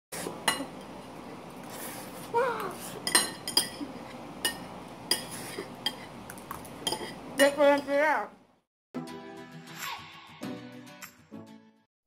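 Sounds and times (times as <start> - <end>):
cutlery clinking on plates: 3.0 - 7.9.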